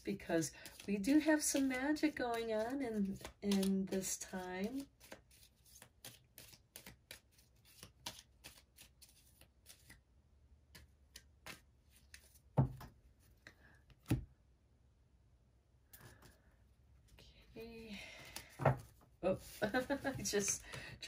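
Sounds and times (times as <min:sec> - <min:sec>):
cards being shuffled: 0:00.4 - 0:10.0, 0:10.7 - 0:14.3, 0:18.2 - 0:20.8.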